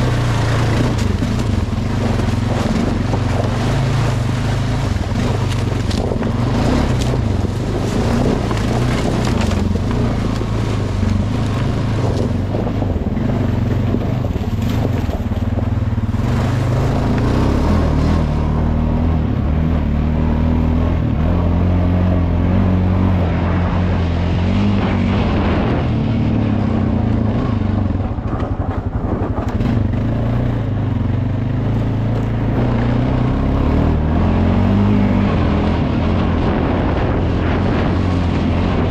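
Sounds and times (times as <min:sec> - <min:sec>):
tyres crackling through dry leaves: 0:00.0 - 0:18.4
atv engine running: 0:00.0 - 0:38.9.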